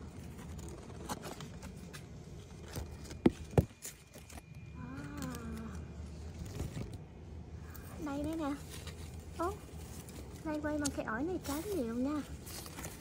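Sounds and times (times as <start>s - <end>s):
woman humming: 4.8s - 6.0s.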